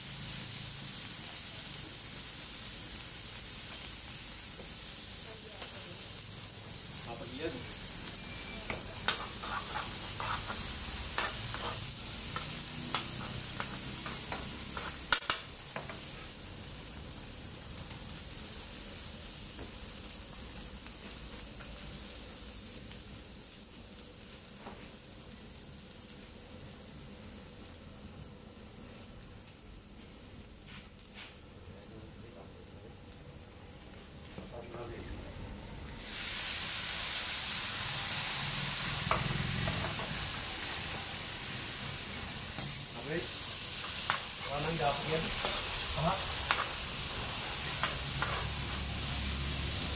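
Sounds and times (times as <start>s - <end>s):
food sizzling on a griddle: 0.0s - 49.9s.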